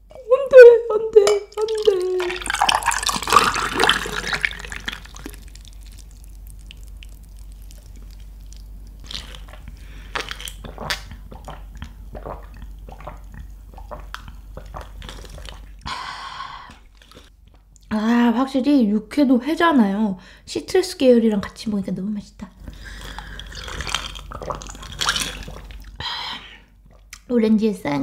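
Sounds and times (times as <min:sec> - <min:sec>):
juice pouring into glass of ice: 0:01.6 - 0:06.8
breathy exhale: 0:15.9 - 0:16.8.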